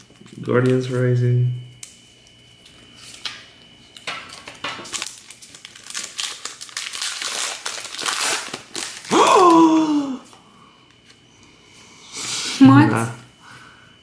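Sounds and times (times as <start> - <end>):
foil wrapper crinkling: 4.3 - 9.6.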